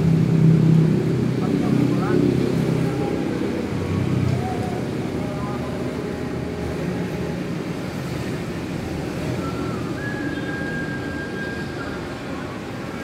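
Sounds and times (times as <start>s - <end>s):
high whistle-like tone: 9.2s - 12.4s.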